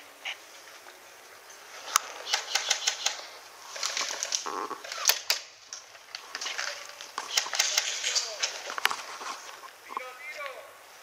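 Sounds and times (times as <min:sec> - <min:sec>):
sharp irregular clicks and snaps: 0:01.9 - 0:09.0.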